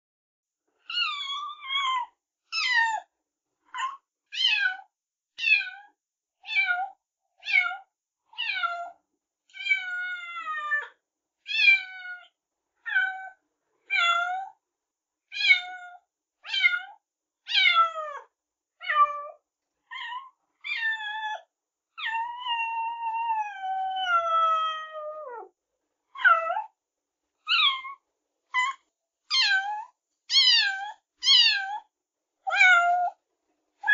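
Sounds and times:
kitten meowing: 0.9s - 3.0s, 15.3s - 18.2s, 18.8s - 21.4s, 22.0s - 25.5s, 26.2s - 26.7s, 27.5s - 28.0s, 28.6s - 31.9s, 32.5s - 33.2s.

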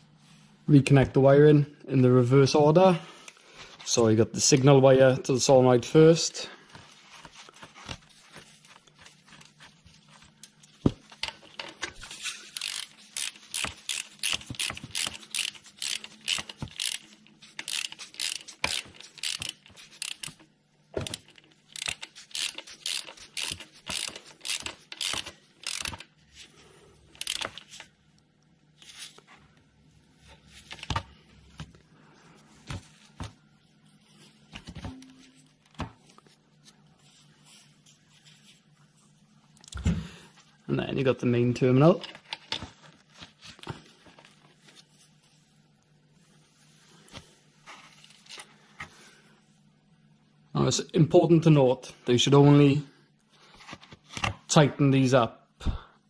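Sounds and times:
ratchet clicking: 12.5s - 20.4s, 21.0s - 26.1s, 27.2s - 27.6s.

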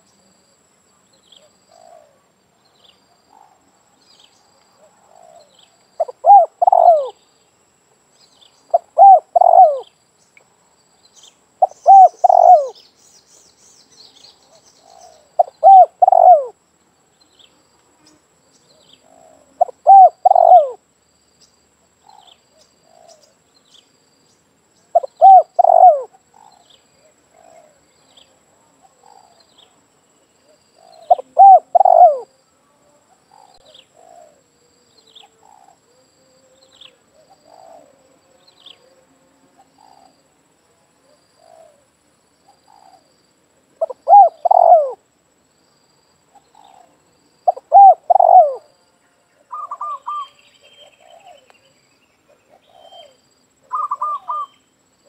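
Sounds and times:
dove cooing: 4.8s - 7.2s, 8.7s - 9.9s, 11.6s - 12.8s, 14.5s - 16.6s, 19.0s - 20.8s, 24.9s - 27.8s, 30.4s - 32.3s, 33.2s - 34.4s, 36.6s - 38.1s, 43.8s - 45.0s, 46.4s - 48.7s, 49.4s - 51.5s, 52.3s - 54.5s.

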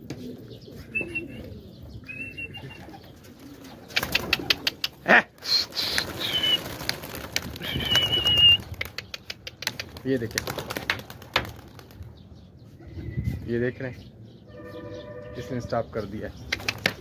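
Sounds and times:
pigeon wings flapping: 2.7s - 12.0s, 16.5s - 17.0s
high drawn-out whistles: 5.5s - 6.7s, 7.6s - 8.6s.

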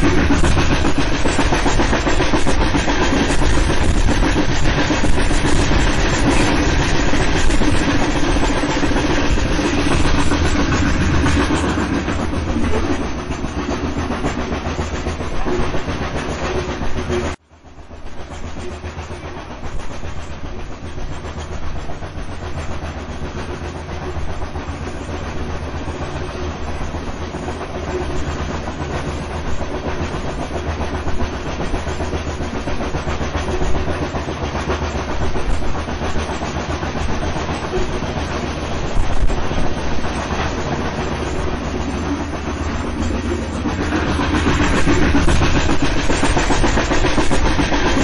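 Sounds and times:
train wheels rumbling on track: 0.0s - 48.0s.

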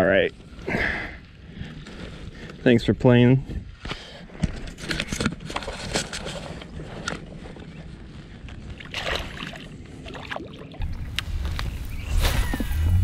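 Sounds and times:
fish splashing into water: 8.8s - 10.7s.

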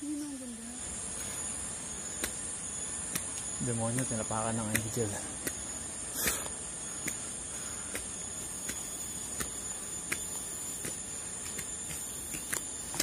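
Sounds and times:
high-pitched insect chorus: 0.0s - 13.0s
footsteps on concrete steps: 6.2s - 13.0s.

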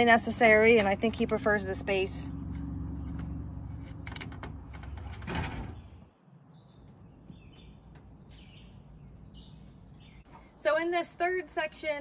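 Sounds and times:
small birds chirping: 0.0s - 10.6s.

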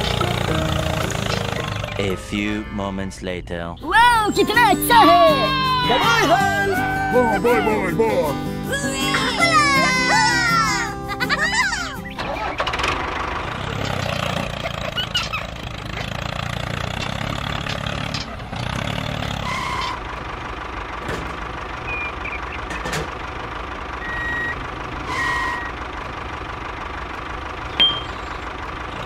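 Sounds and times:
tractor engine idling: 0.0s - 29.0s
short high beeps: 27.8s - 28.2s.

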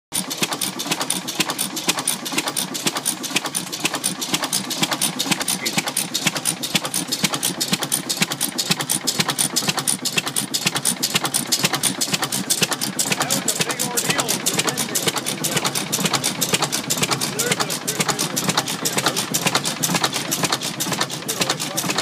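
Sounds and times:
rapid clicking clatter: 0.1s - 22.0s
stationary engine running: 0.1s - 22.0s.

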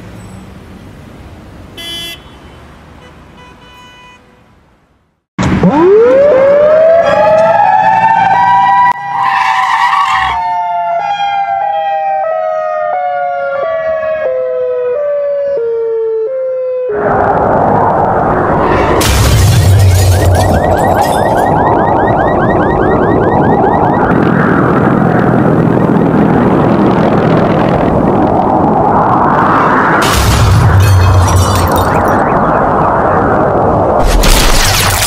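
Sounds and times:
wind-up warning siren wailing: 5.6s - 18.3s, 20.4s - 27.1s.

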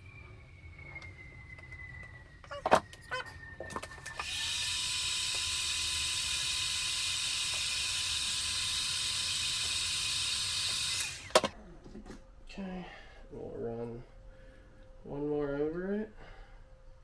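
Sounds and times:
heat gun fan hissing: 4.1s - 11.5s.

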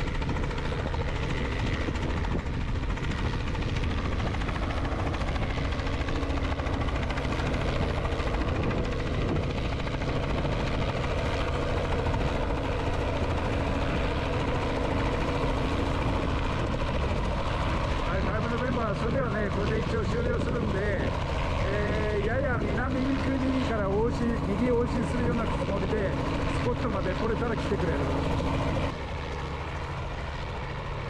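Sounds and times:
helicopter engine running: 0.0s - 31.0s
helicopter rotor beating: 0.0s - 31.0s.

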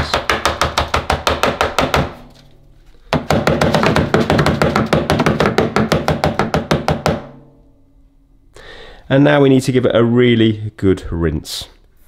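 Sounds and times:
filter knocking against a bin: 3.1s - 7.3s.

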